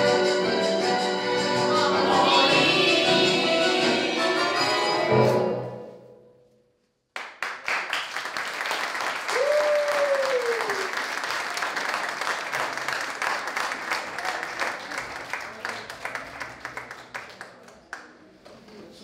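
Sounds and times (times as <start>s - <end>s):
audience applause: 7.2s - 18.1s.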